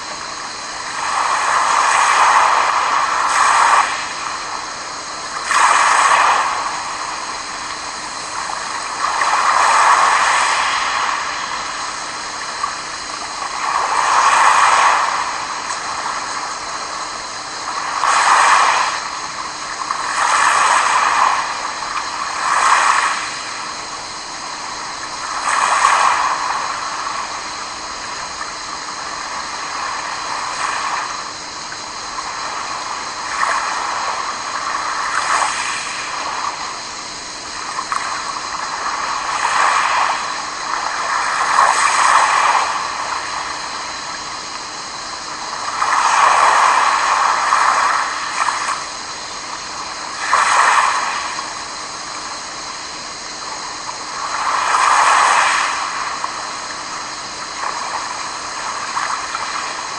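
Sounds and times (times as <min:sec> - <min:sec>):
sea noise: 0:00.0 - 0:59.9
waves lapping on pebbles: 0:00.4 - 0:04.6, 0:05.4 - 0:17.0, 0:17.6 - 0:23.8, 0:24.5 - 0:27.9, 0:32.2 - 0:36.5, 0:37.4 - 0:44.2, 0:45.2 - 0:52.4, 0:54.0 - 0:59.9.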